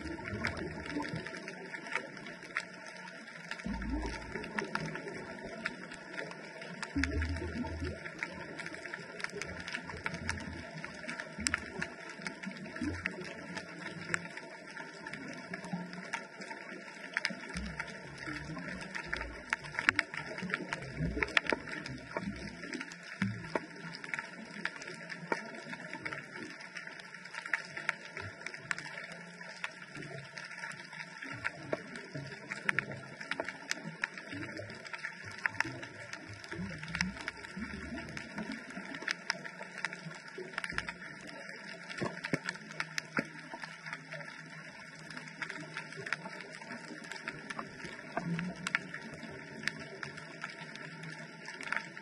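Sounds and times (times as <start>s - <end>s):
sharp clicks and crackles: 0.0s - 52.0s.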